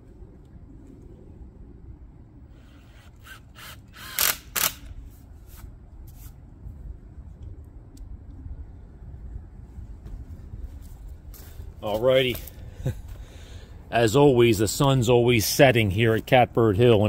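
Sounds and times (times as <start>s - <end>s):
cordless drill driving screws: 2.5s - 4.9s.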